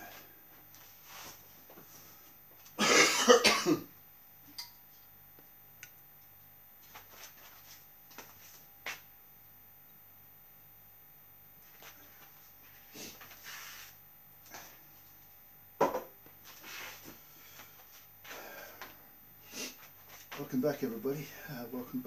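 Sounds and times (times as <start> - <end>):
man coughing: 2.8 - 3.9.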